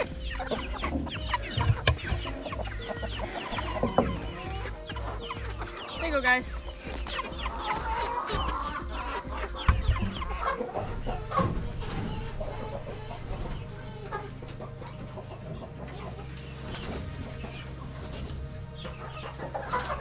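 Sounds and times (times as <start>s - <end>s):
chickens clucking: 0.0s - 20.0s
low steady hum: 0.0s - 20.0s.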